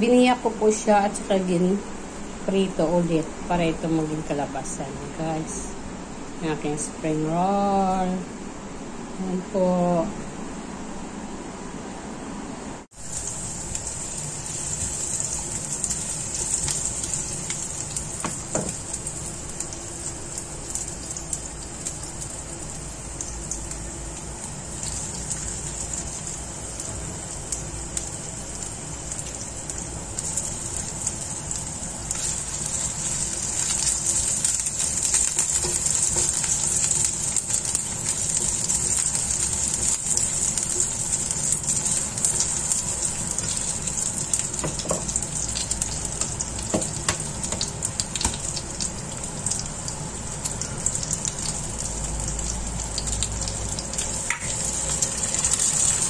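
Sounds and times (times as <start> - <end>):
vegetables sizzling in hot oil: 12.9 - 56.0.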